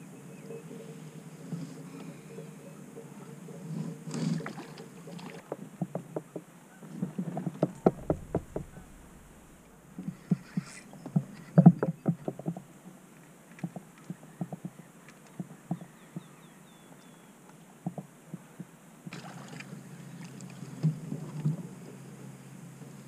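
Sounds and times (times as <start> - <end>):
water lapping against kayak hull: 3.9 - 12.7
knocks and clicks from boat: 4.1 - 12.7, 13.5 - 16.3, 17.8 - 19.2.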